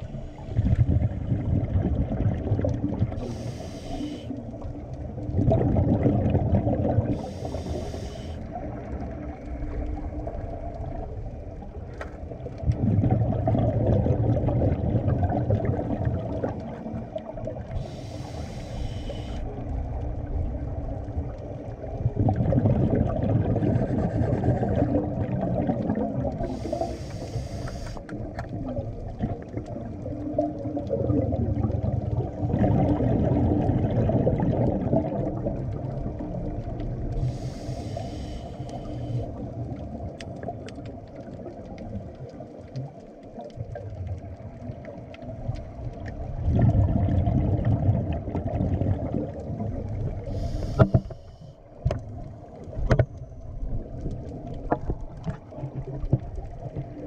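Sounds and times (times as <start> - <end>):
exhaled bubbles gurgling: 0.0 - 57.0
regulator inhale hisses: 3.2 - 4.4, 7.1 - 8.5, 17.8 - 19.5, 26.4 - 28.1, 37.2 - 39.4, 50.2 - 51.7.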